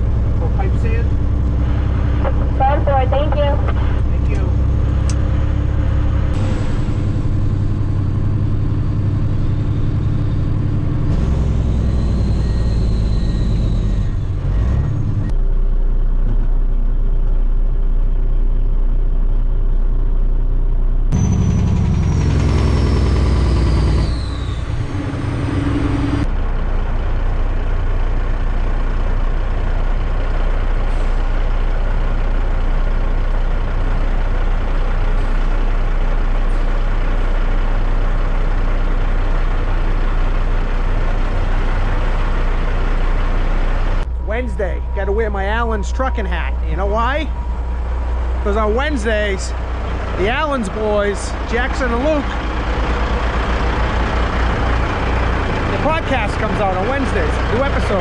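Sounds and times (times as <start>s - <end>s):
diesel truck engine running: 0.0s - 58.0s
high tone sliding downward: 21.1s - 26.3s, 43.5s - 52.4s.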